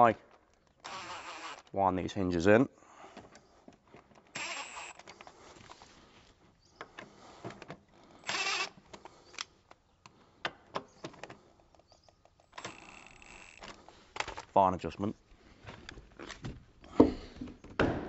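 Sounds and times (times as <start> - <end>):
cordless drill driving screw: 0.8 - 1.7, 4.3 - 5.2, 8.2 - 8.8, 12.5 - 13.8.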